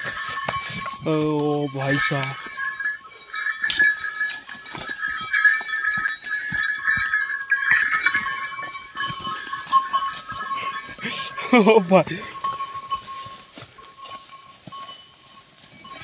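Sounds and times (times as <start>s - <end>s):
bells jangling: 0.0s - 16.0s
bulls knocking and scuffing: 0.0s - 16.0s.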